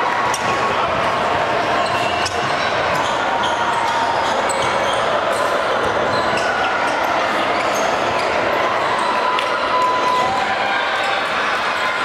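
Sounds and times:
sneaker squeaks: 0:01.8 - 0:09.2.

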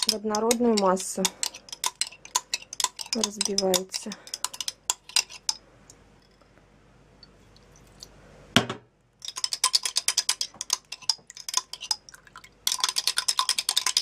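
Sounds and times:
spoon clinking against glass jar: 0:00.0 - 0:05.4, 0:09.2 - 0:14.0.

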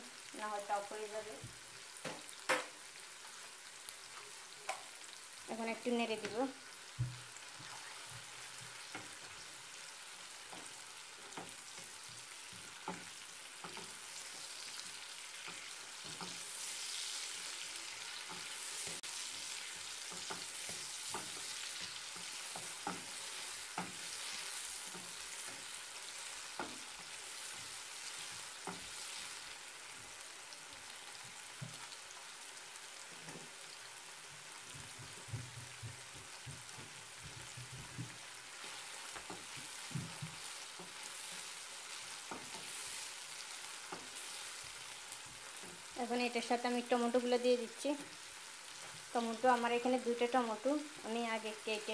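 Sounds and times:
onions sizzling in oil: 0:00.0 - 0:51.9
spatula tapping and scraping pan: 0:07.0 - 0:09.4, 0:10.2 - 0:29.2, 0:34.8 - 0:44.4.

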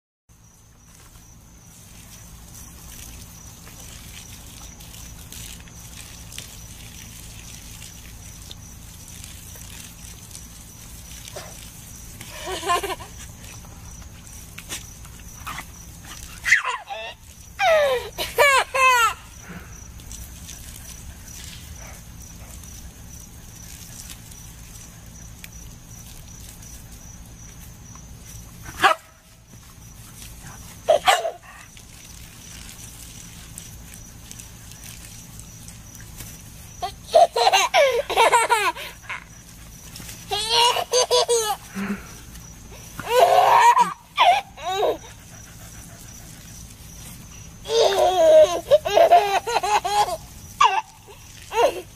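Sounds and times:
toddler laughing and squealing: 0:16.3 - 0:19.4, 0:30.9 - 0:31.7, 0:36.8 - 0:39.3, 0:40.3 - 0:41.7, 0:43.0 - 0:45.3, 0:47.6 - 0:51.9.

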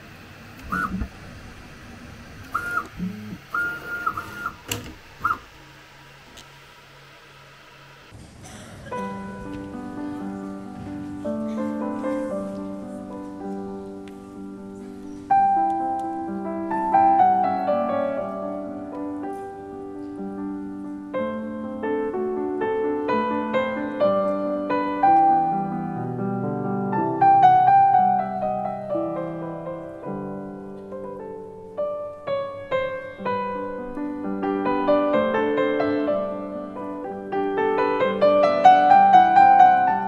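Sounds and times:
slow piano melody: 0:08.1 - 0:40.0.

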